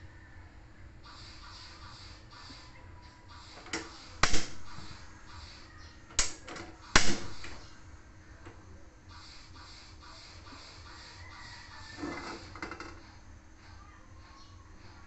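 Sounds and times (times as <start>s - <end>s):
gas igniting with snap: 3.5s - 5.0s, 6.1s - 7.7s
stove igniter clicking: 3.6s - 4.8s, 6.1s - 7.7s.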